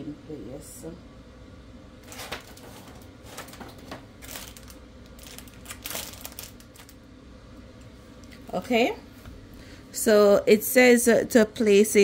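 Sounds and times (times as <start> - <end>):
plastic crinkle: 2.0 - 7.1.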